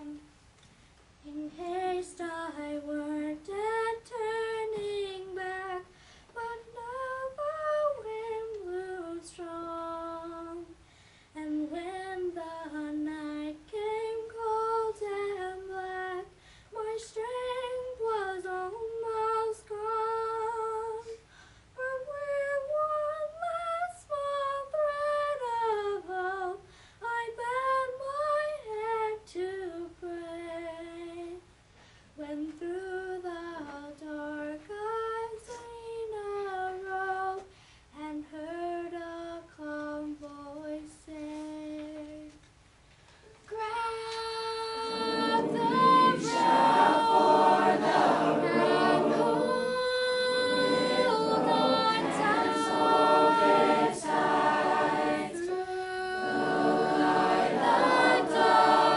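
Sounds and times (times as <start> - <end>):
girl singing unaccompanied: 0.0 - 0.3, 1.2 - 10.8, 11.4 - 21.2, 21.8 - 31.5, 32.2 - 42.5, 43.3 - 58.9
breaths between phrases: 5.9 - 6.3, 10.8 - 11.4, 16.4 - 16.7, 21.2 - 21.8, 26.6 - 27.0.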